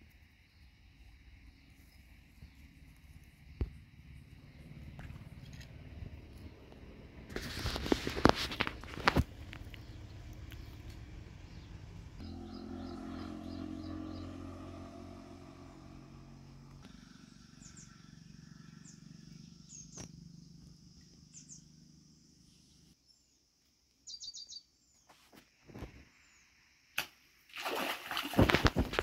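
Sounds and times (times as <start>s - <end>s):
steady low hum: 1.8s - 23.0s
small birds chirping: 8.6s - 14.4s, 16.7s - 25.1s.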